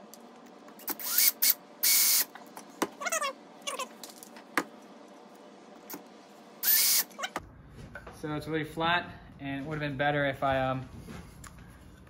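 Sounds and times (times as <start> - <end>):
cordless drill driving screw into wood: 0.8 - 2.3, 6.6 - 7.1.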